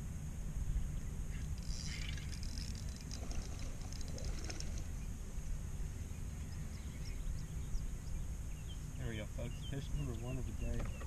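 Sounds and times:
fishing reel clicks: 1.6s - 4.9s.

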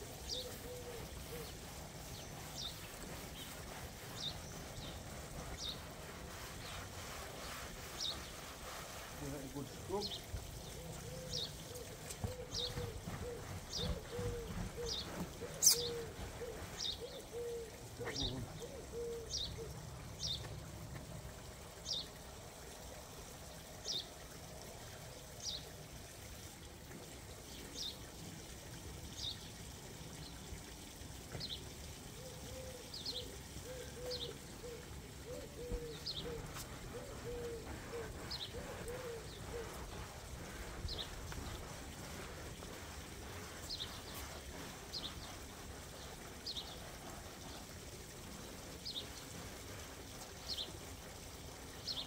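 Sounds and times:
brush scrubbing hot tub: 0.0s - 28.2s, 32.9s - 52.0s
water trickling from hose: 0.0s - 52.0s
birds chirping: 0.1s - 20.7s, 32.3s - 52.0s
lower repeated bird call: 10.8s - 19.7s, 32.3s - 41.8s.

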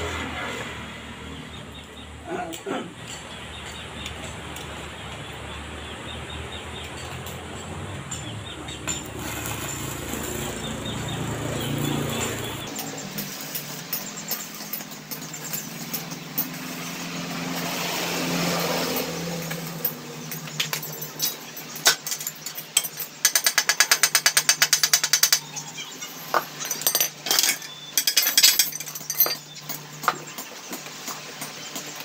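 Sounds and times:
welding arc crackling: 8.9s - 15.9s.

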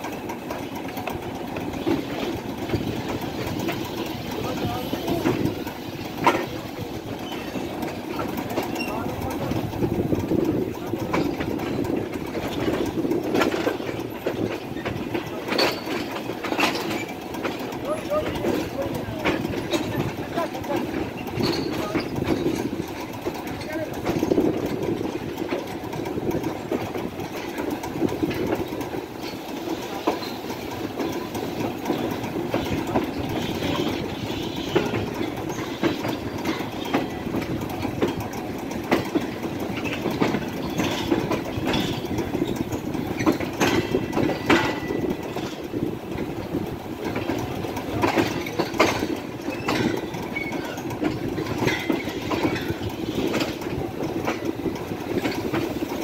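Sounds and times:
train wheels rumbling on rails: 0.0s - 56.0s
wheels clacking over rail joints: 0.0s - 56.0s
high wheel squeals: 49.4s - 50.8s.

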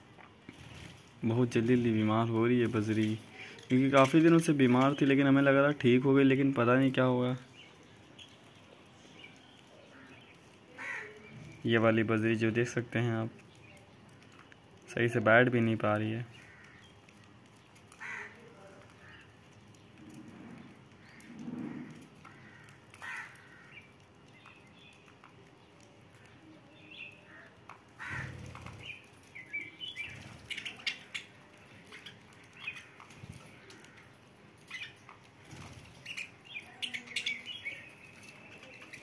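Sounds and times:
budgerigars chirping: 28.0s - 33.0s, 35.9s - 39.0s.

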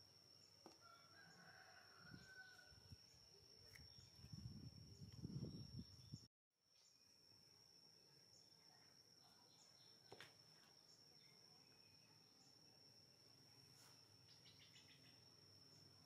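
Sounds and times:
high insect whine: 0.0s - 16.0s
distant rooster crowing: 0.6s - 3.0s.

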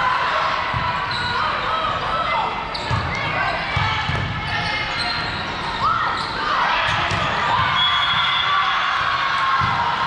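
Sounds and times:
shoes squeaking on court: 2.7s - 3.3s.

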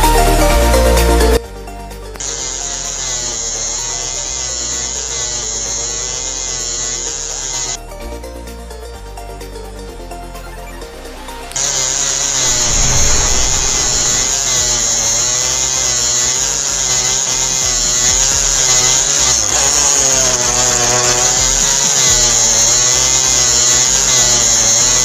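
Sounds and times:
hand drill whining: 2.1s - 7.9s, 11.5s - 25.0s.

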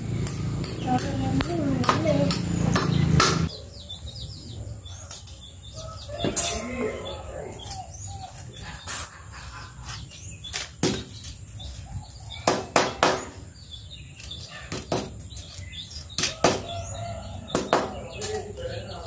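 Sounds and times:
wire hanger knocking on concrete: 17.5s - 18.4s.

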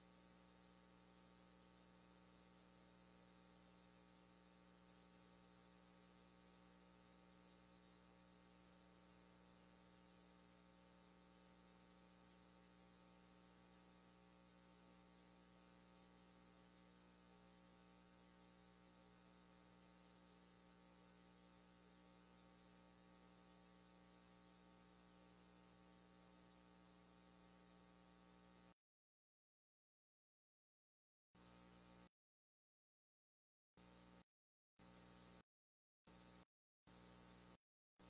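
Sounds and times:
faint electrical hum: 0.0s - 28.8s.

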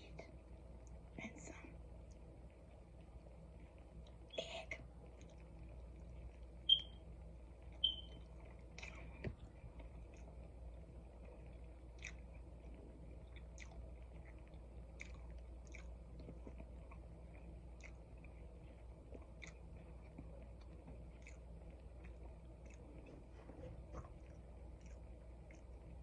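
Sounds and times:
steady low hum: 0.0s - 26.0s
chewing food: 5.0s - 6.6s, 7.6s - 26.0s.

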